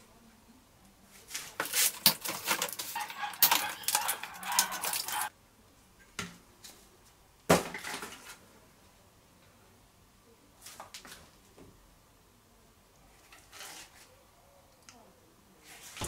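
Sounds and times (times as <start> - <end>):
packing material rustling and clattering: 1.4 - 5.3.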